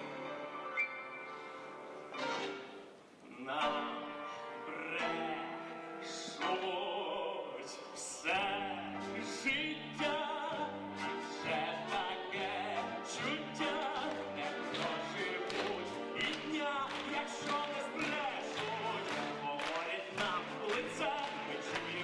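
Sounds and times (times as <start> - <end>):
man singing with vibrato: 3.2 - 22.0.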